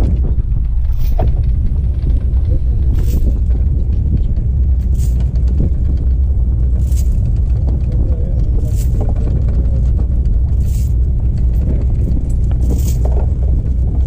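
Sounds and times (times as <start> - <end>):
boat engine rumble: 0.0 - 14.0
wind on microphone: 0.0 - 14.0.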